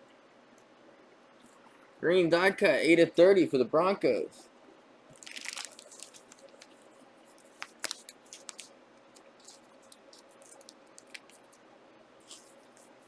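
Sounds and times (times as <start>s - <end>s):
packaging rustling: 5.1s - 11.6s, 12.2s - 13.0s.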